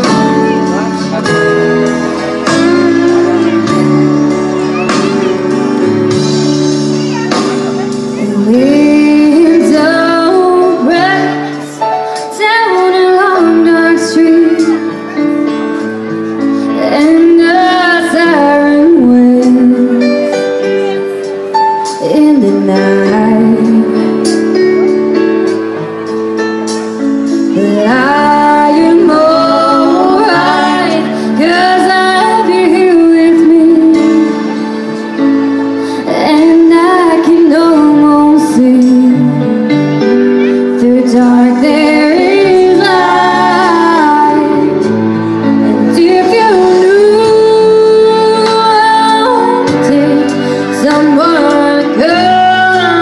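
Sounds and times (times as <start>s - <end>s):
instrumental accompaniment: 0.0s - 53.0s
woman singing through a pa: 8.2s - 11.6s, 27.6s - 34.4s, 40.8s - 44.9s, 45.7s - 53.0s.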